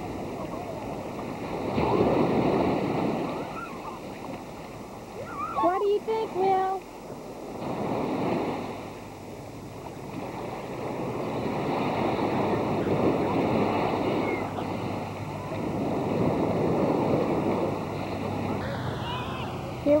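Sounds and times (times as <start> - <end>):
small surf breaking on sand: 7.5 - 9.0.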